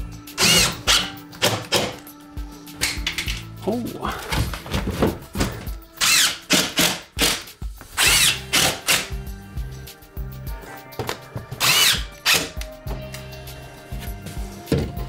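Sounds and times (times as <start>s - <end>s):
cordless drill driving screws: 8.0s - 9.1s, 11.6s - 12.5s.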